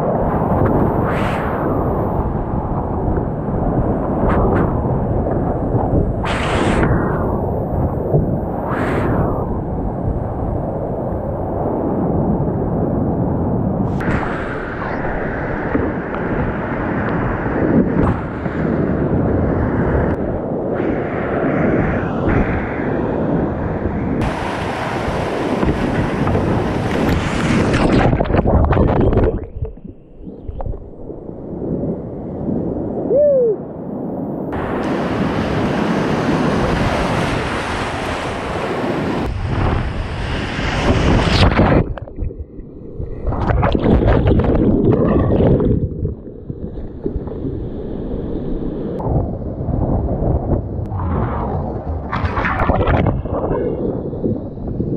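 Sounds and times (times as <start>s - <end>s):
whitewater rushing and splashing: 24.2s - 29.5s.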